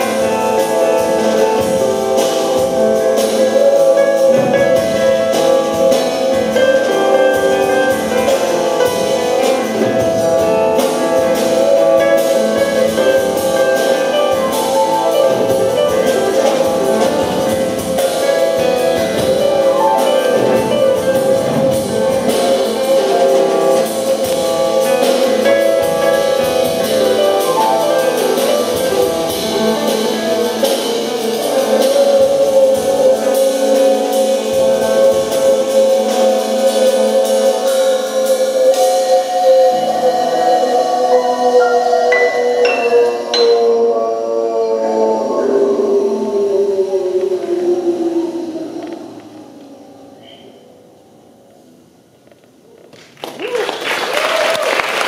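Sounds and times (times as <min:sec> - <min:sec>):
assorted percussion: 0:00.0 - 0:44.0
drum kits: 0:00.0 - 0:44.0
grand piano: 0:00.0 - 0:55.0.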